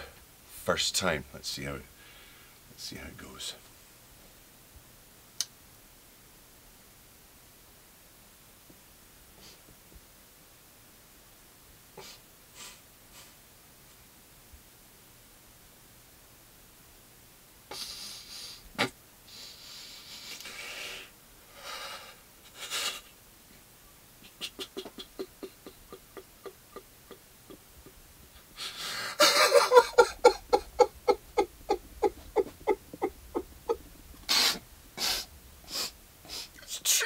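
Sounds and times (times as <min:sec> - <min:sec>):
quick sobs: 0:24.2 - 0:37.0
man crying: 0:24.3 - 0:28.0, 0:29.0 - 0:33.9.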